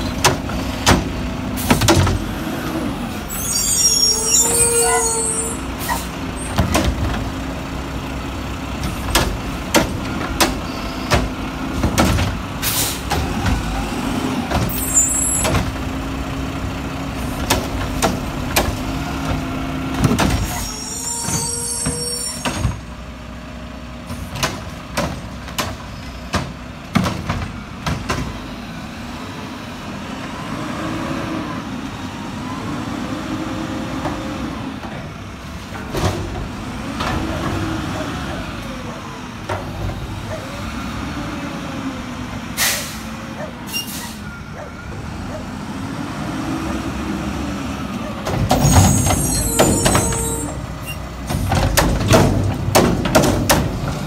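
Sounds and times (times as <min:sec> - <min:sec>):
carts clunking and banging: 0:00.0 - 0:02.5, 0:05.9 - 0:07.8, 0:08.6 - 0:22.9, 0:24.0 - 0:28.5, 0:34.0 - 0:40.8, 0:48.0 - 0:54.0
truck engine and hydraulic drone: 0:00.0 - 0:54.0.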